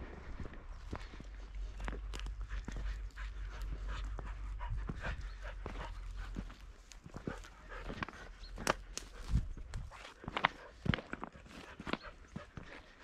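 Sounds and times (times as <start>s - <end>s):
dog panting: 0.2s - 13.0s.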